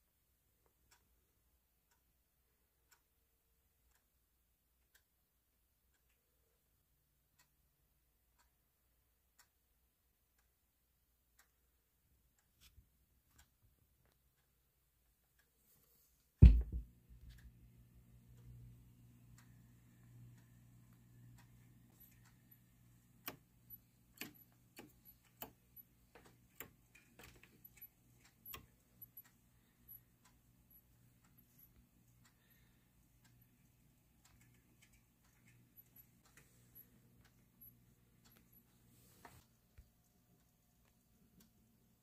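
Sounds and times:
low steady hum: 16.4s - 42.0s
faint ticks: 18.2s - 41.7s
clicks: 19.4s - 33.4s, 34.2s - 41.6s.

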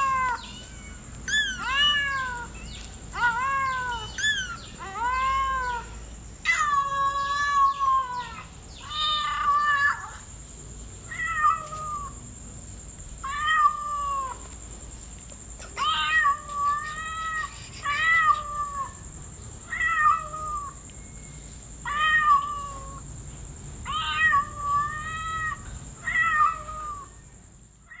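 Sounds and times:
kitten meowing: 0.0s - 2.5s, 15.8s - 19.0s.

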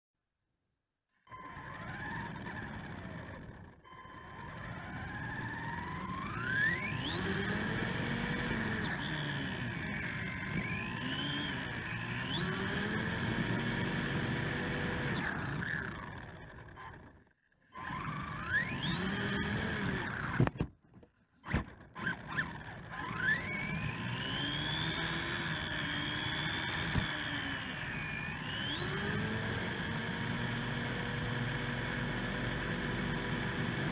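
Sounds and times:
rc truck electric motor whining: 1.2s - 20.6s, 21.4s - 33.9s.

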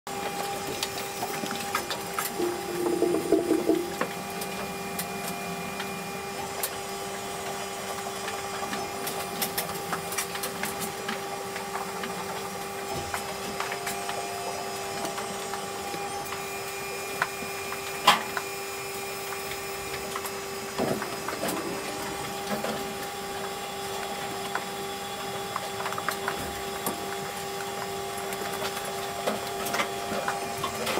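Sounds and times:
motor humming: 0.1s - 16.4s.

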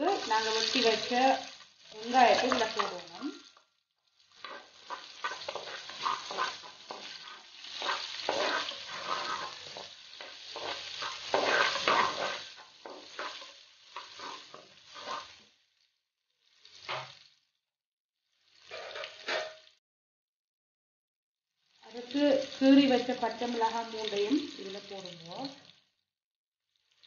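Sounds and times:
onions sizzling in a pot: 0.0s - 19.8s, 21.5s - 26.1s, 26.7s - 27.0s
wooden spatula scraping a clay pot: 4.3s - 15.4s.

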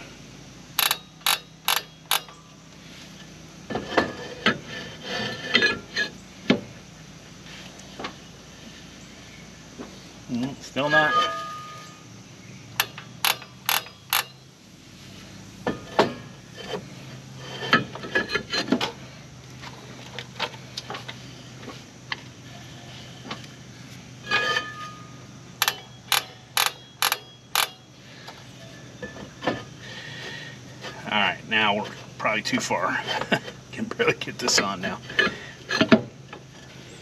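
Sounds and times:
sharp metal clicks and knocks: 0.8s - 2.4s, 12.8s - 14.4s, 25.6s - 27.9s.

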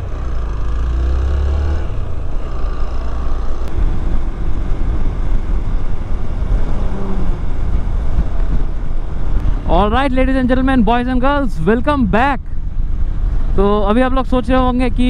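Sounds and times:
motorcycle engine: 0.0s - 9.9s
deeper rumble: 0.0s - 15.0s
road noise: 0.0s - 15.0s
wind noise: 1.8s - 15.0s.

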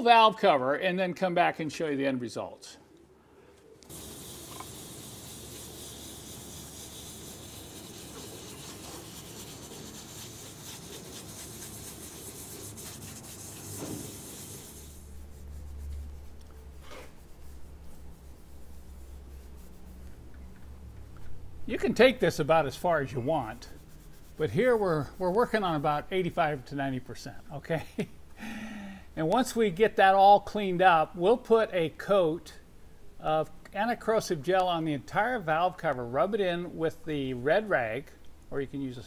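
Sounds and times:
abrasive pad scrubbing metal: 3.9s - 20.0s, 21.8s - 26.6s.

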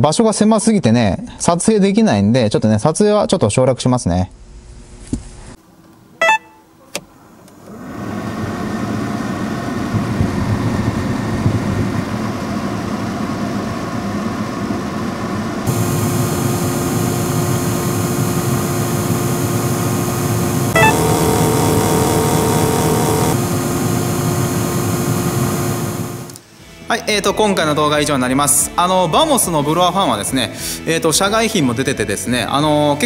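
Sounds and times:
blower fan humming with rushing air: 7.2s - 26.6s.

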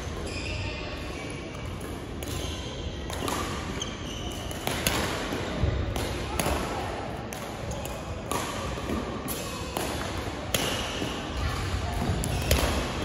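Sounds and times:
sneaker squeaks on wooden floor: 3.7s - 4.6s
racket striking shuttlecock: 4.4s - 6.6s, 7.3s - 11.2s, 12.0s - 13.0s.

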